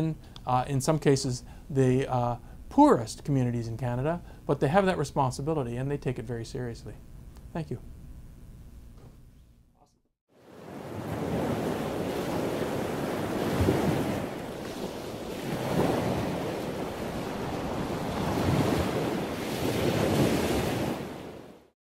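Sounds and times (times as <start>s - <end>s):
ocean waves breaking: 10.3s - 21.7s.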